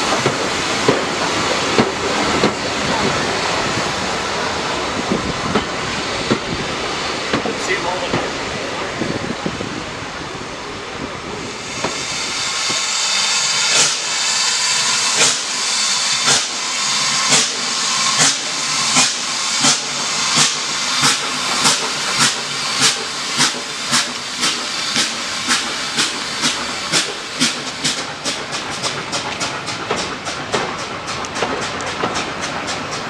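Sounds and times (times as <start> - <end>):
steam locomotive exhaust chuffs: 0.0 - 33.0
hiss of escaping steam: 11.0 - 31.0.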